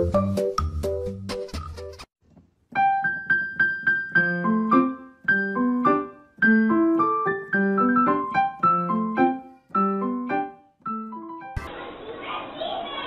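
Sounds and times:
piano music: 2.7s - 11.6s.

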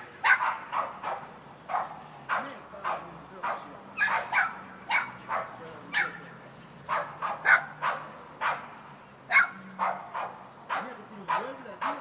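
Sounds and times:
dog barking: 0.2s - 6.3s, 6.9s - 8.7s, 9.3s - 12.0s.

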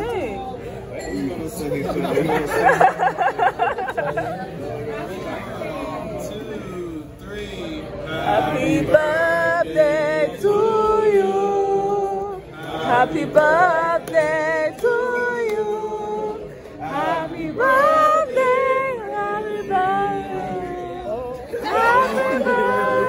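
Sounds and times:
man singing unaccompanied: 7.8s - 23.0s.

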